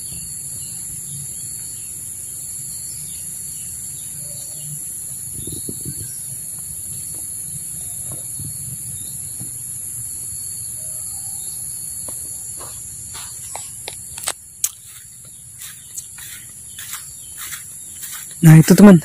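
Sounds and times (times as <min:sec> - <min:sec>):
tropical forest insects chorus: 0:00.0 - 0:19.0
footsteps on grass and leaves: 0:12.6 - 0:19.0.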